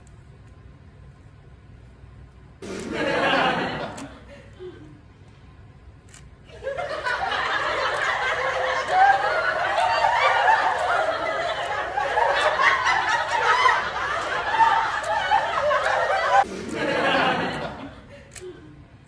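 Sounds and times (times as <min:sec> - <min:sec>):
crowd laughing: 0:02.6 - 0:04.8, 0:06.4 - 0:18.6.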